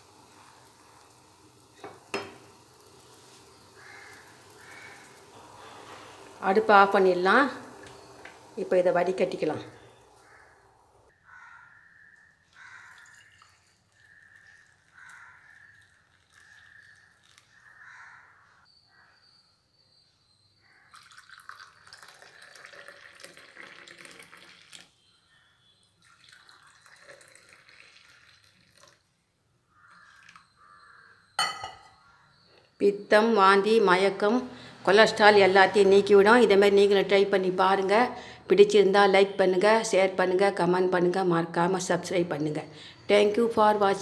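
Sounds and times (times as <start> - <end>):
liquid splashing into cups: 12.6 - 17.7, 20.9 - 24.9, 26.0 - 29.1, 29.9 - 30.5
liquid trickling through strainer: 12.8 - 17.6, 20.9 - 24.9, 26.0 - 29.0.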